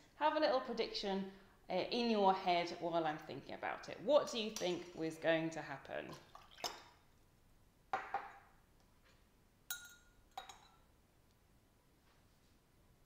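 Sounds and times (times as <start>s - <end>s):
glass knocking on bench: 8.0s - 8.4s
ringing glass clinks: 9.7s - 10.8s.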